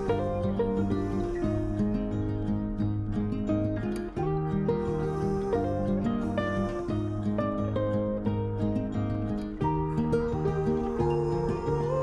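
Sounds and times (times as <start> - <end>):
gentle instrumental music: 0.0 - 12.0.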